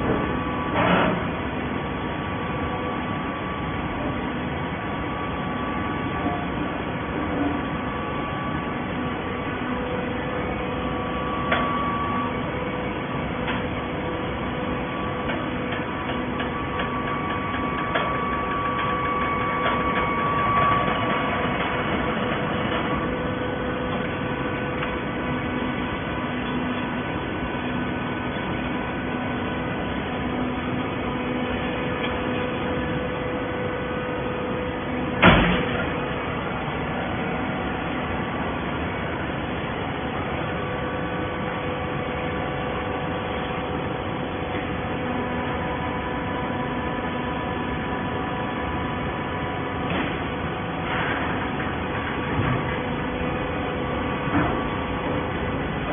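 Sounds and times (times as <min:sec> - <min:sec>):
baling press machine hum: 0:00.0 - 0:55.9
loud sharp bang: 0:35.2 - 0:35.8.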